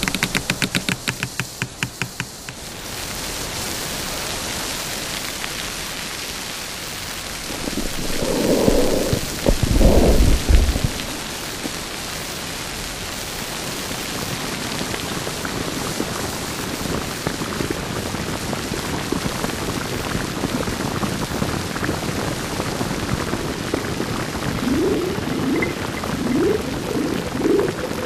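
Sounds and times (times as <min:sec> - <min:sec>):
steady rain-like hiss: 0:00.0 - 0:28.0
deep rumble: 0:07.4 - 0:11.9.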